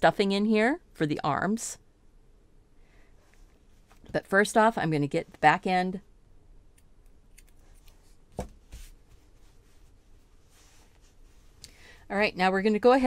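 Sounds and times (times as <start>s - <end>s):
hands shifting knitted fabric: 7.8s - 11.6s.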